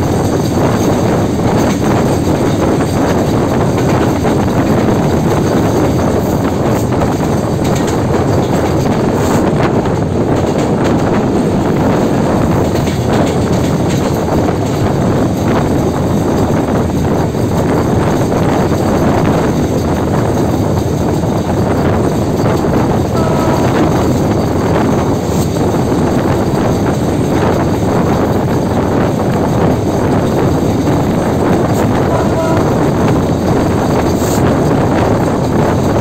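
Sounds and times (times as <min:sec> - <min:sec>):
diesel locomotive running: 0:00.0 - 0:36.0
wind rushing over microphone: 0:00.0 - 0:36.0.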